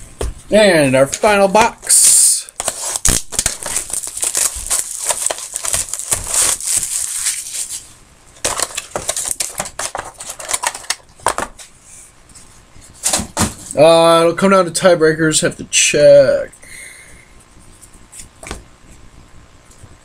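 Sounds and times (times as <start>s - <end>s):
plastic wrapping tearing and crinkling: 1.9s - 11.1s.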